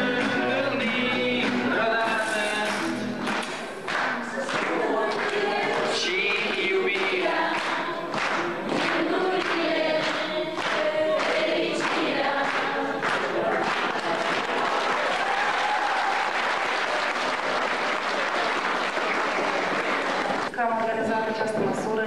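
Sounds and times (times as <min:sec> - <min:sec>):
young voices singing together: 0:00.0 - 0:03.5, 0:04.2 - 0:14.6
rhythmic hand-clapping: 0:00.0 - 0:20.9
applause: 0:02.6 - 0:20.9.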